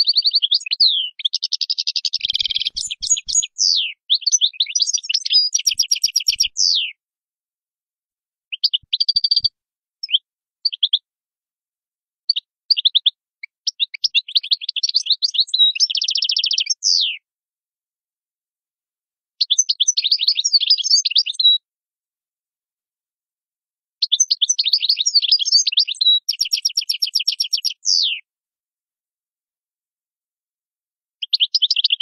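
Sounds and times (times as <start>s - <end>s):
goldfinch twittering song: 0.0s - 7.0s, 8.5s - 11.0s, 12.3s - 17.2s, 19.4s - 21.6s, 24.0s - 28.2s, 31.2s - 32.0s.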